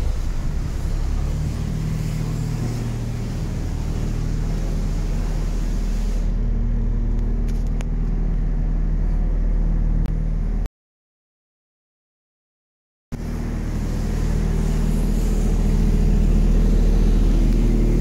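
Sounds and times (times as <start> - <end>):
engine idling: 0.0 - 10.7, 13.2 - 18.0.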